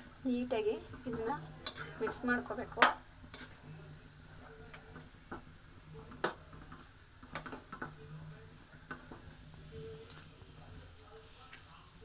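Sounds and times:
spoon scraping a frying pan: 0:00.9 - 0:03.8.

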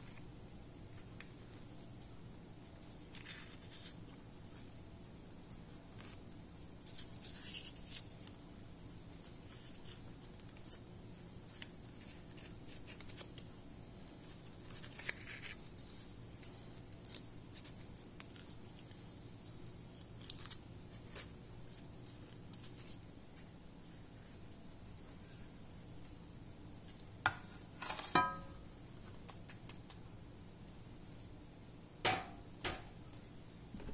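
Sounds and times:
paper crinkling and rustling: 0:02.8 - 0:04.9, 0:05.5 - 0:27.1.

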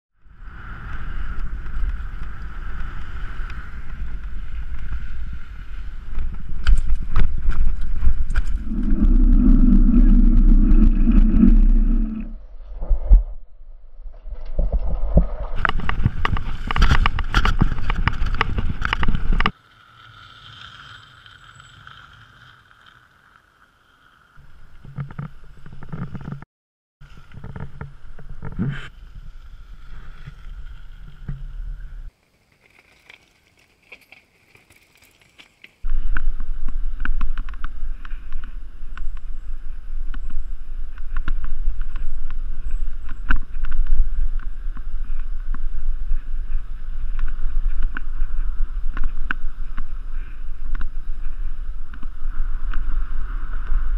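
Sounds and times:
wind buffeting microphone: 0:00.4 - 0:12.4
bike rattling over gravel and planks: 0:15.6 - 0:23.3, 0:27.1 - 0:35.8.

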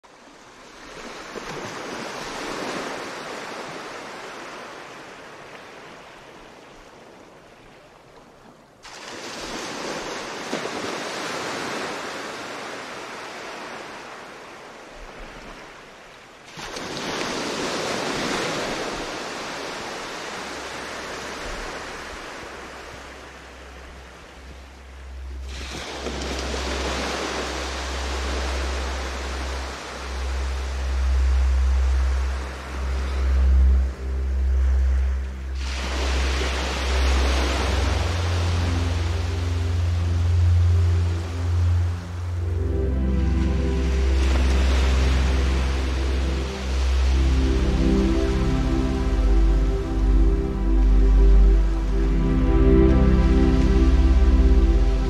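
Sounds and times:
ocean waves breaking: 0:00.1 - 0:55.0
low rumble: 0:23.2 - 0:55.0.

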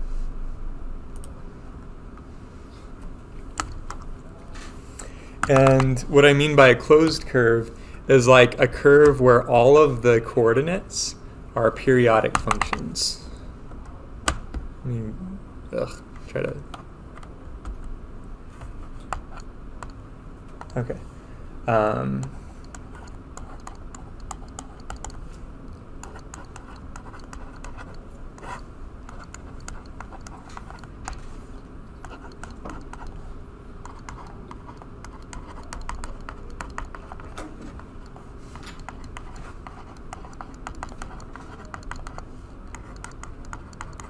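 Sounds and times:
low room hum: 0:00.0 - 0:44.0
stylus tapping on touchscreen: 0:05.4 - 0:06.0.

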